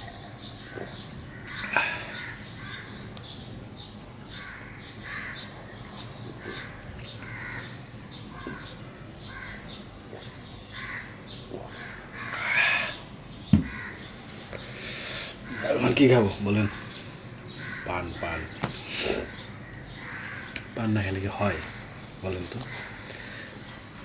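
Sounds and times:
crows cawing: 1.3s - 3.0s, 4.3s - 5.5s, 6.4s - 8.7s, 9.3s - 9.7s, 10.7s - 13.0s, 13.6s - 14.1s, 16.6s - 18.5s, 19.2s - 20.6s, 22.7s - 23.4s.

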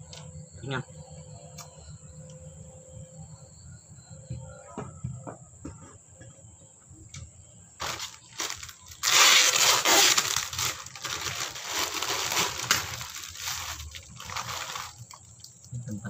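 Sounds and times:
plastic bag crinkling: 7.8s - 15.4s.

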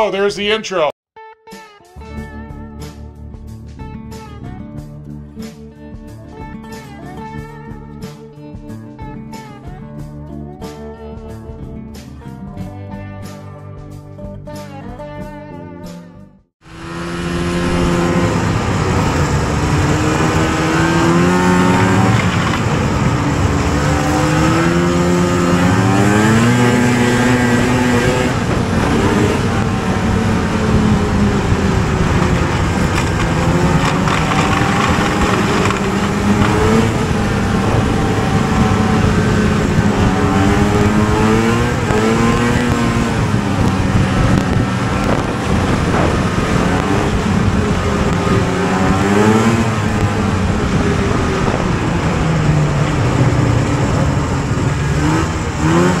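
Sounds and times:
snowmobile engine revving: 16.6s - 56.0s
steady rushing noise: 16.6s - 56.0s.

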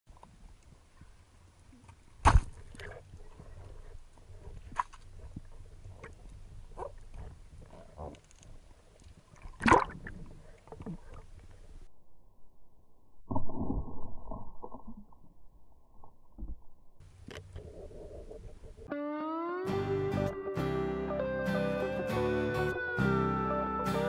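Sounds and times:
water sloshing underwater: 2.0s - 11.9s.

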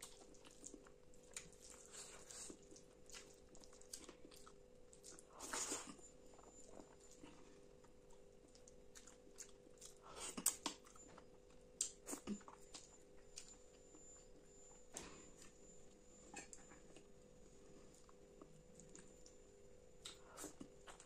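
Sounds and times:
wet chewing and mouth clicks: 0.0s - 13.6s.

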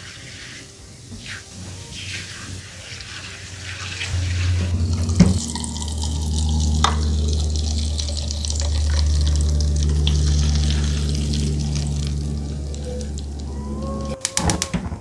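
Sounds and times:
oil sizzling and bubbling: 0.0s - 13.6s
steady low hum: 4.1s - 14.2s.

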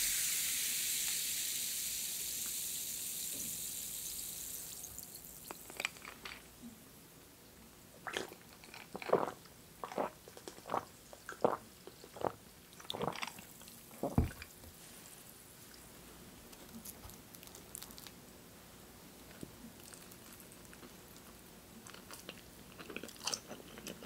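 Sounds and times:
person gulping drink: 8.0s - 14.5s.

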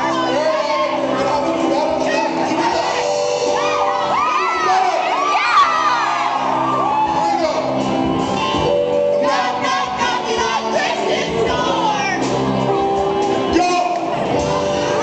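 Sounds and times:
live rock band playing: 0.0s - 15.0s
lead singer vocals: 9.1s - 11.9s.

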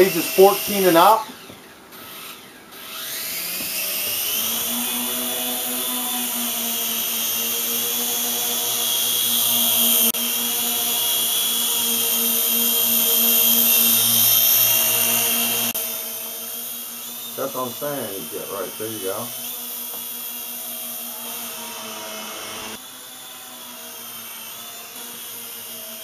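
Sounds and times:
toy helicopter motors buzzing: 0.0s - 26.0s.

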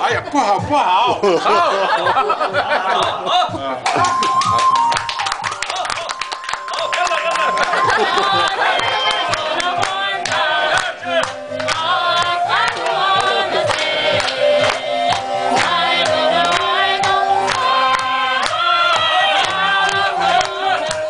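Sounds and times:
percussive beat: 0.0s - 21.0s
group of people singing: 7.5s - 21.0s.

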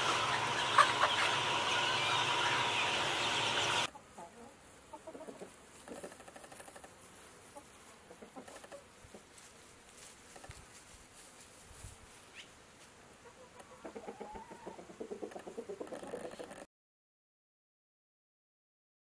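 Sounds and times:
chickens clucking: 0.0s - 9.4s, 13.2s - 16.7s.

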